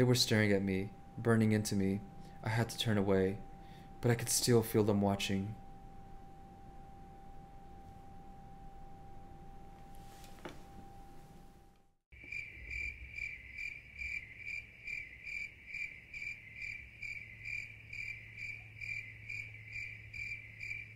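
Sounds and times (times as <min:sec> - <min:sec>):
low hum: 0:00.0 - 0:20.9
cricket chirping: 0:12.2 - 0:20.9.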